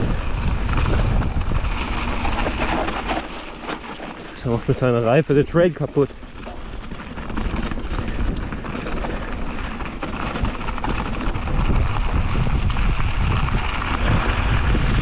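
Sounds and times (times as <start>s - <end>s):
wind buffeting microphone: 0.0s - 3.2s, 6.8s - 15.0s
bike rattling: 0.0s - 15.0s
gravel clicks and knocks: 0.0s - 15.0s
tyres rushing on loose ground: 0.0s - 15.0s.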